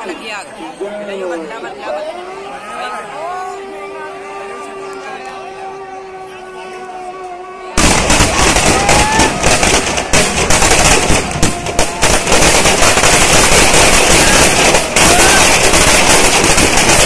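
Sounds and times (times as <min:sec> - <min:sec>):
firecrackers crackling: 0:07.8 - 0:17.0.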